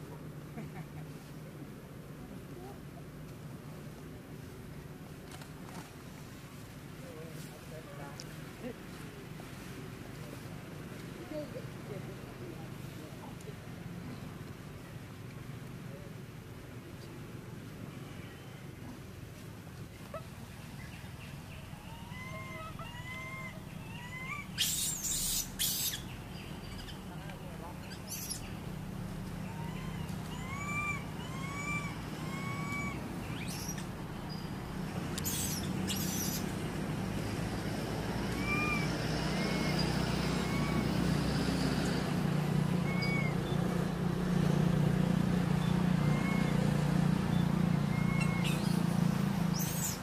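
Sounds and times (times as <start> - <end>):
leafy branches rustling: 3.3 - 13.5
thin arching chirps: 19.9 - 28.8, 29.4 - 36.6, 47.3 - 50.0
young macaque squeaky calls: 21.8 - 27.0, 27.8 - 28.5, 29.4 - 34.5, 35.2 - 36.5, 38.4 - 40.8, 42.8 - 43.6, 45.6 - 46.6, 47.8 - 48.8, 49.5 - 50.0.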